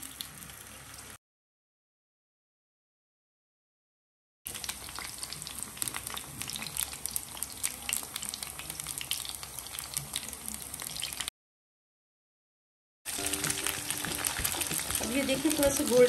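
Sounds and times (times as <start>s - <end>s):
chicken deep-frying in oil: 0.0s - 1.2s, 4.5s - 11.3s, 13.1s - 16.0s.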